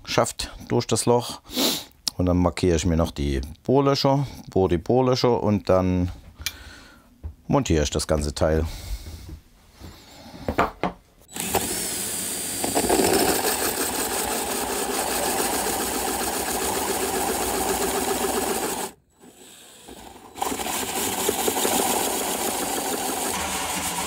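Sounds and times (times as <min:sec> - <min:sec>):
electric drill cutting fibreglass: 0:11.3 - 0:24.0.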